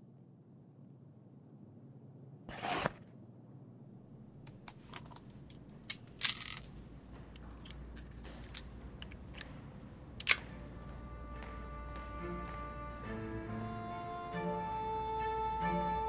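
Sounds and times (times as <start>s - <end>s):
faint string music: 7.9s - 16.0s.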